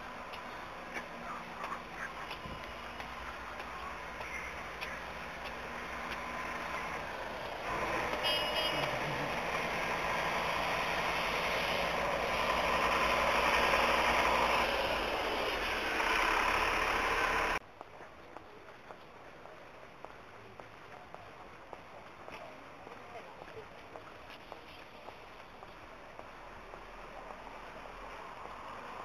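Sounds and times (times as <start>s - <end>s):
road traffic hiss and rumble: 0.0s - 29.0s.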